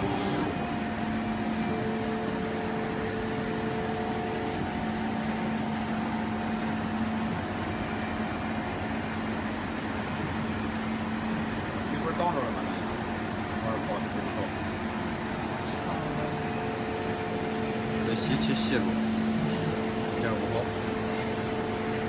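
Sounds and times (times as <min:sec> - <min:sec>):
machine tone: 0:00.0 - 0:08.4, 0:15.8 - 0:22.0
laser cutter hum and hiss: 0:00.0 - 0:22.0.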